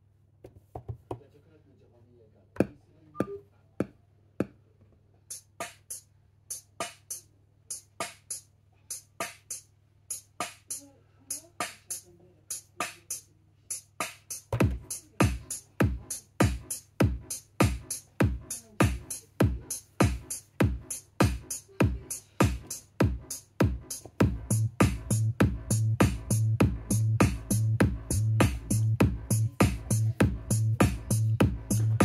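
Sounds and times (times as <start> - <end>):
low kick drum: 14.5 - 32.0.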